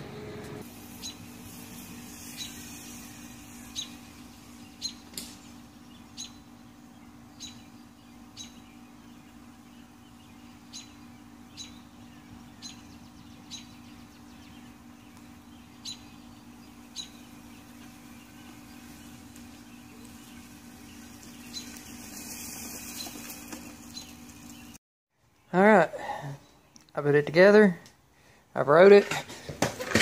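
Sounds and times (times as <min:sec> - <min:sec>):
faint steady hum: 0:00.0 - 0:28.5
bird chirping: 0:00.9 - 0:25.6.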